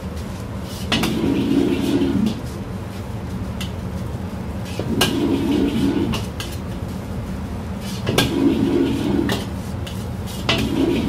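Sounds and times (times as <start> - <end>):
wok burner rushing: 0.0 - 11.0
ladle clanking and scraping wok: 0.7 - 2.6, 4.6 - 6.9, 7.8 - 11.0.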